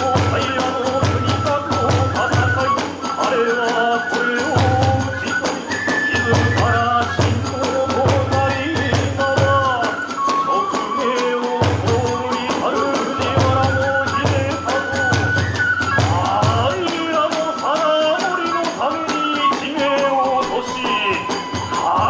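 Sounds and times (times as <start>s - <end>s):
bamboo flute melody: 0.0s - 22.0s
hand cymbals clashing: 16.9s - 22.0s.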